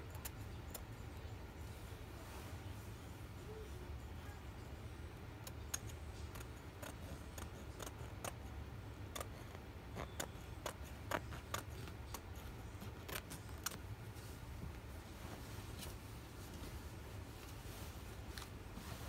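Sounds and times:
scissors snipping fabric: 5.4 - 8.5, 9.1 - 13.8.

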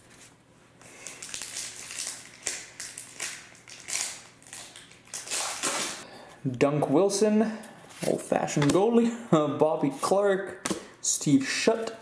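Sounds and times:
foil wrapper crinkling and tearing: 0.9 - 6.0.

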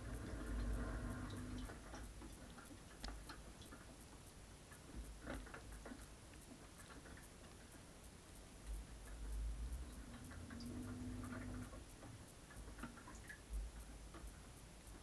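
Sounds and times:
low machine rumble: 0.0 - 1.7
faint regular ticking: 0.0 - 15.0
water dripping in dishwasher: 9.8 - 14.4.

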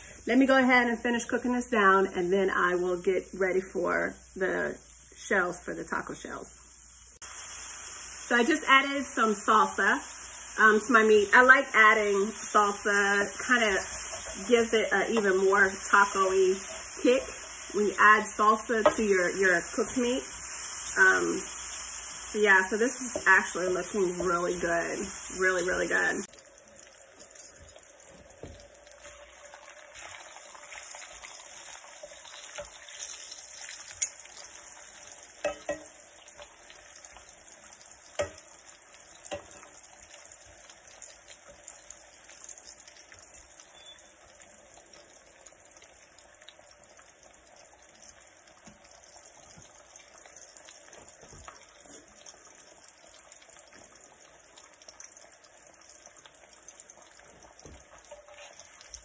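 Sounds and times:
tortillas sizzling in a skillet: 2.6 - 59.0
fork and spatula tapping pan: 35.4 - 35.9.

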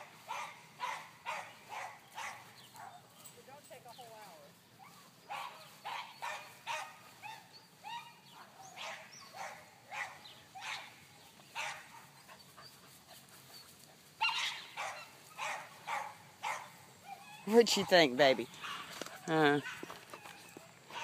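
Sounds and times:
puppy barking and yipping: 0.1 - 3.0, 4.8 - 11.0, 11.6 - 12.8, 13.4 - 21.0.

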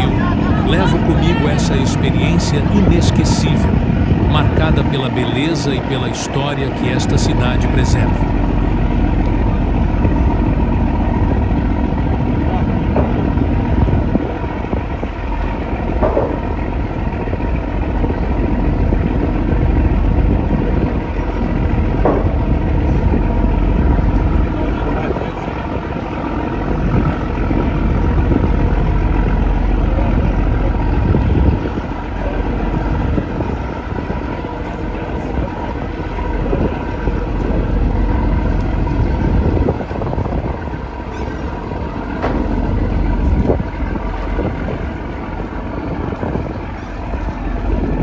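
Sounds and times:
boat engine rumbling: 0.0 - 48.0.

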